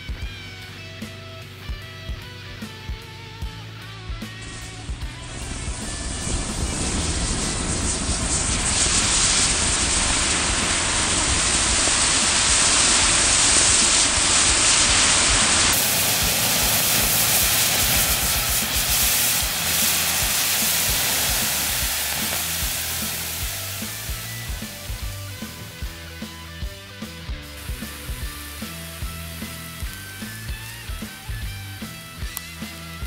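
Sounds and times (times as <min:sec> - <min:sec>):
steam sizzling: 0:03.8 - 0:33.0
sparklers hissing: 0:04.2 - 0:33.0
water pouring: 0:08.6 - 0:25.8.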